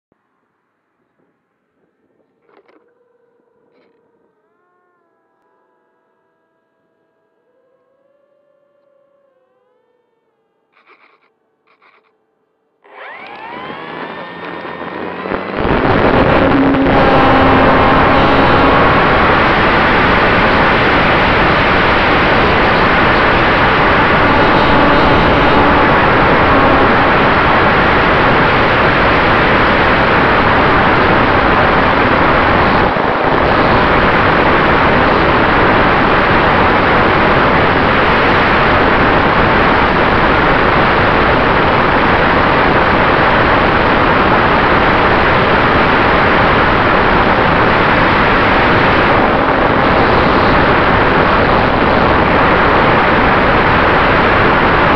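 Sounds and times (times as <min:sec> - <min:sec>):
faint constant whine: 0:00.1 - 0:54.9
propeller noise: 0:12.8 - 0:54.9
wind rush: 0:13.0 - 0:54.9.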